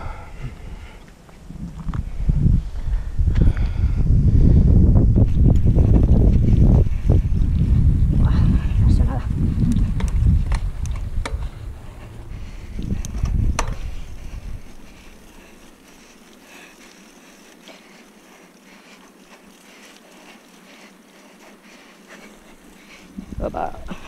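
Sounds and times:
bike tyres rumbling on dirt: 0.0s - 24.0s
wind buffeting microphone: 0.0s - 24.0s
bike rattling over bumps: 4.5s - 24.0s.

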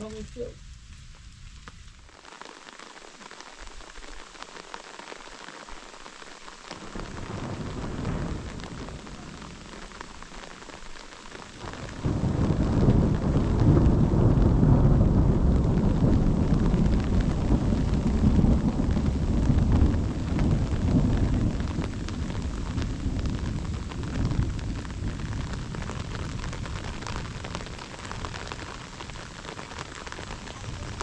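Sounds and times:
steady rain: 0.0s - 31.0s
thunder rolling: 6.7s - 31.0s.

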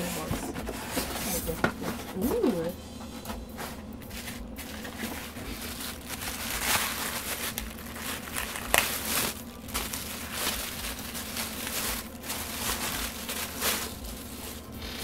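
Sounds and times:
plastic bags crinkling: 4.0s - 15.0s.

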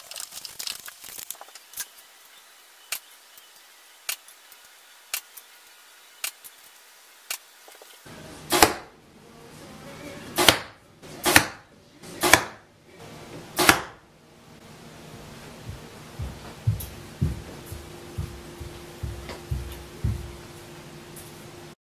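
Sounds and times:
arrows hitting target: 8.5s - 8.9s, 10.4s - 11.6s, 12.2s - 12.6s, 13.6s - 14.0s.

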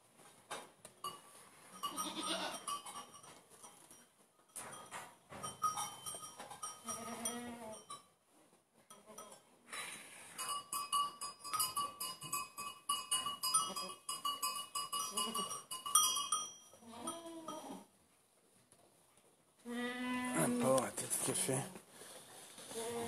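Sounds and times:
collar bell jingling: 1.0s - 8.1s, 10.3s - 17.8s.

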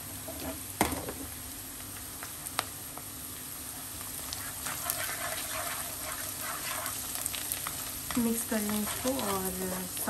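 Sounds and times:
onions sizzling in oil: 0.0s - 10.0s
wooden spatula stirring: 4.2s - 10.0s.

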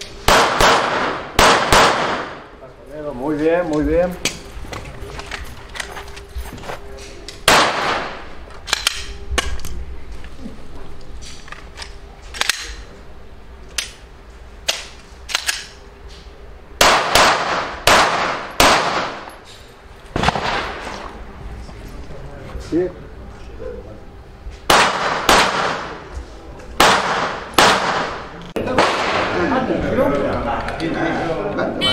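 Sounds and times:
gunshots with echo: 0.2s - 2.5s, 7.5s - 8.3s, 16.8s - 19.3s, 24.7s - 26.1s, 26.8s - 29.4s.

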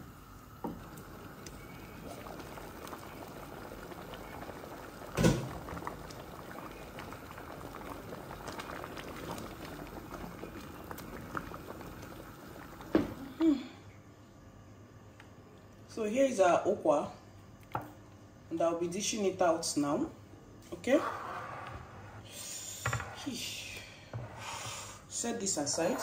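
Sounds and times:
thick porridge bubbling and popping: 0.5s - 13.4s.

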